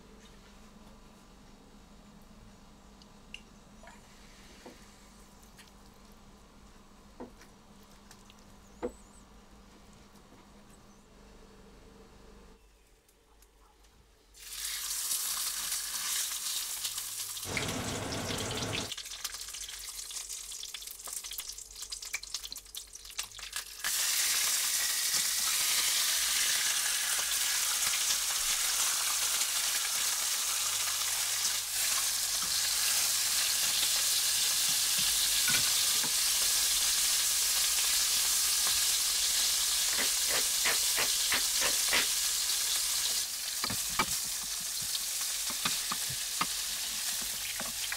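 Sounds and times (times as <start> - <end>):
steaks sizzling in frying pan: 14.4 - 47.9
fat spitting and crackling: 39.9 - 42.2.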